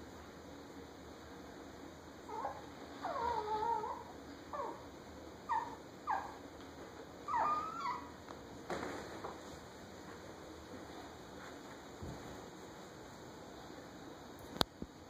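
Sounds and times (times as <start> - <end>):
small dogs yipping and whining: 2.3 - 6.4, 7.2 - 8.2.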